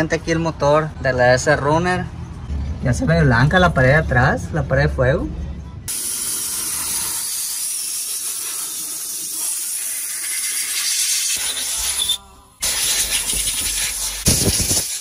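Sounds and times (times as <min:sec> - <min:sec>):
water nozzle spraying hiss: 0:05.9 - 0:15.0.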